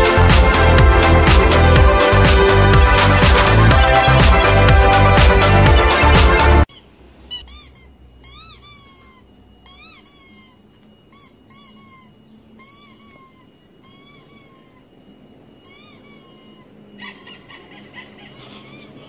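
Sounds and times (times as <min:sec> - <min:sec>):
faint steady high tone: 0:03.4 - 0:19.0
squeaky toy squeaks: 0:05.4 - 0:19.0.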